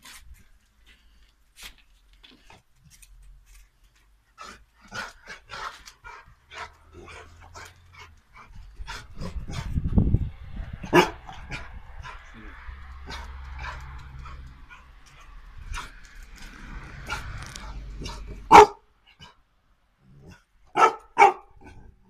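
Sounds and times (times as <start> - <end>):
dog barking: 10.8 - 12.2, 18.0 - 18.9, 20.7 - 21.8.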